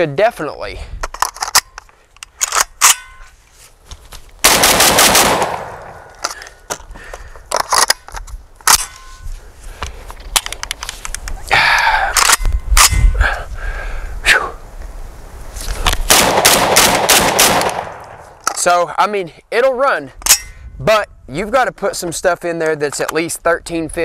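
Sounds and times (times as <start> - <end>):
metallic clicks of gun action: 1.0 - 3.2, 7.5 - 9.1, 10.2 - 11.4, 12.1 - 13.1
shotgun blast: 4.4 - 6.1, 16.1 - 18.2.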